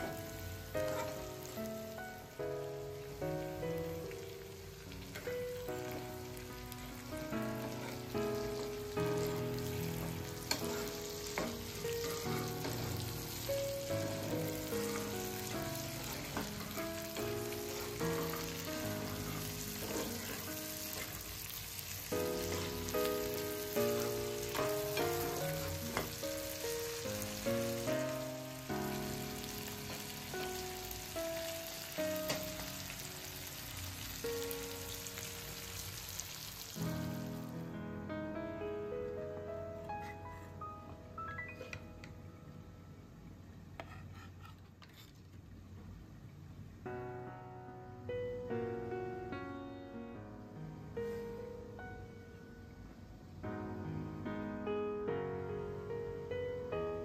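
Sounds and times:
slow melody of single notes: 0.0s - 35.6s, 36.8s - 43.3s
food sizzling in a wok: 0.0s - 37.6s
spatula scraping a wok: 0.9s - 1.2s, 10.3s - 12.8s, 15.9s - 21.2s, 43.8s - 45.3s.

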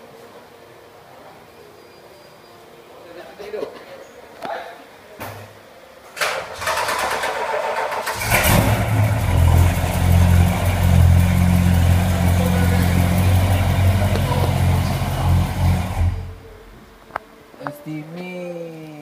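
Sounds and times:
starter motor cranking: 6.3s - 10.2s
car engine idling: 6.6s - 16.6s.

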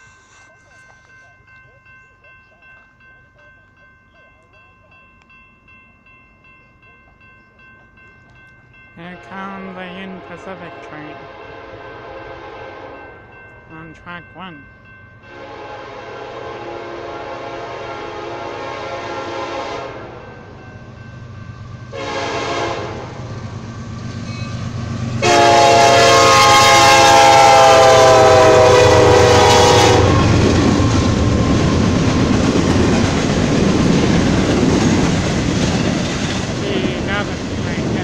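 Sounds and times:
locomotive air horn blasts: 10.1s - 13.1s, 15.3s - 20.2s, 21.9s - 23.2s, 25.2s - 30.3s.

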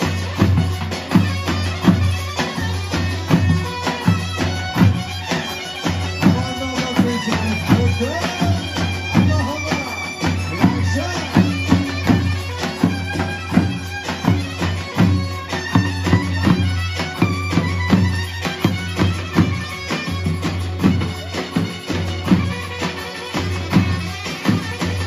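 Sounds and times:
shrill reedy wind instrument melody: 0.0s - 25.0s
bass drum beating dance rhythm: 6.1s - 16.7s.

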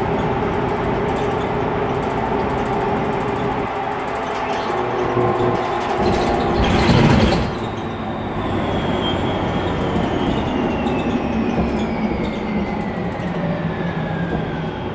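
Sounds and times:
loud rush of noise: 0.0s - 11.1s
bus interior running noise: 0.0s - 14.9s.

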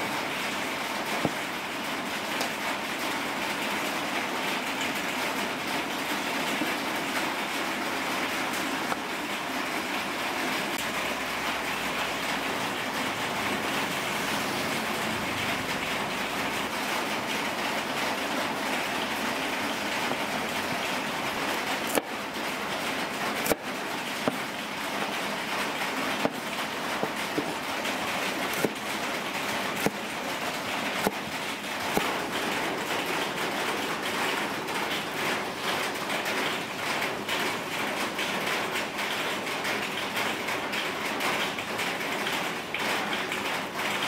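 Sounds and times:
cleaver striking cutting board: 24.2s - 24.4s, 28.5s - 28.9s, 29.8s - 30.1s, 31.0s - 31.2s.

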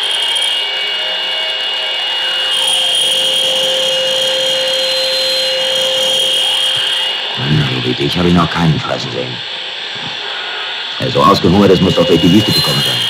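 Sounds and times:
high whistling tones: 0.0s - 13.0s
machine drone with hum: 0.0s - 13.0s.

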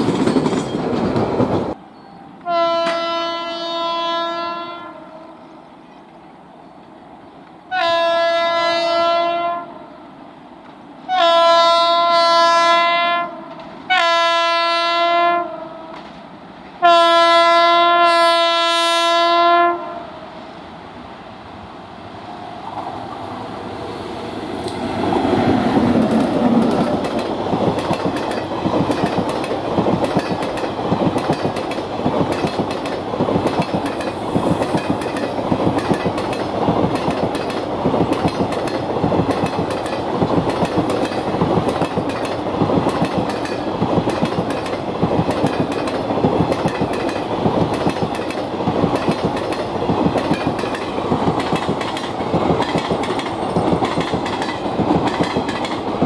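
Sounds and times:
train wheels clattering over rail joints: 0.0s - 1.8s, 25.8s - 56.0s.

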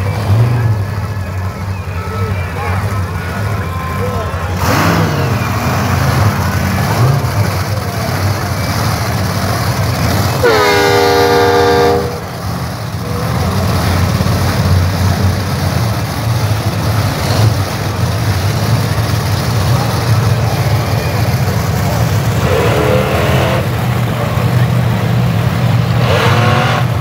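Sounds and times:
monster truck engines rumbling: 0.0s - 27.0s
loud horn blast: 10.3s - 12.4s.

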